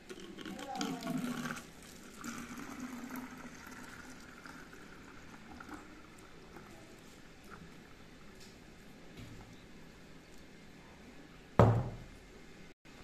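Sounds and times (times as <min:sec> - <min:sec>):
thick liquid pouring into bottle: 0:00.0 - 0:07.7.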